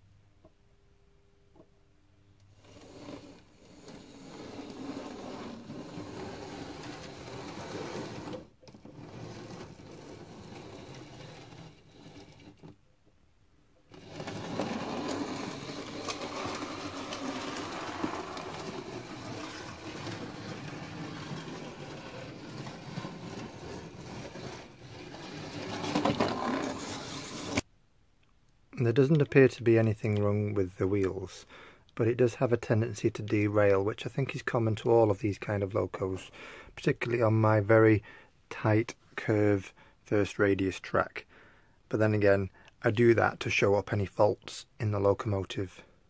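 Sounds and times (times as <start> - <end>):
model train motor whirring: 2.6 - 12.7, 13.9 - 27.6.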